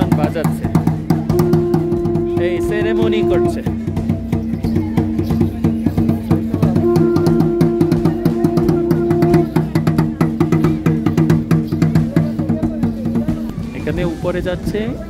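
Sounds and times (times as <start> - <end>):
quick even drum beat: 0.0 - 15.0
flute long held notes: 1.3 - 3.7, 6.8 - 9.7.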